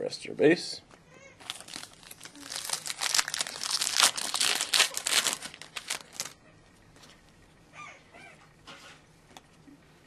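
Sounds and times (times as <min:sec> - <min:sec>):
foil wrapper crinkling and tearing: 0:01.4 - 0:06.4.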